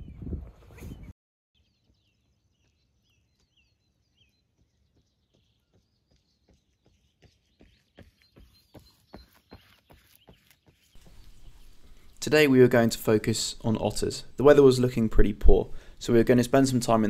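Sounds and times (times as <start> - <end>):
songbirds chirping: 0.0 - 17.0
footsteps on road: 1.8 - 12.2.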